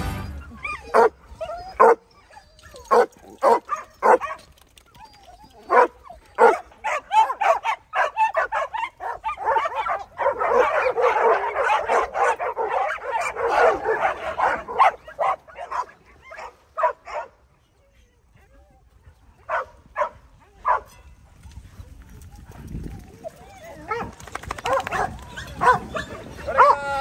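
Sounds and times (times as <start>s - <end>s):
dogs barking: 0.7s - 2.1s, 2.8s - 4.6s, 5.7s - 17.4s, 19.5s - 20.9s, 23.9s - 26.8s.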